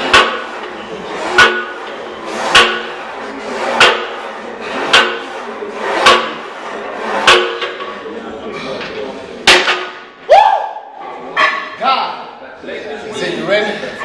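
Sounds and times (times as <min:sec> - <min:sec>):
leg press sled clanking: 0:00.0 - 0:10.2.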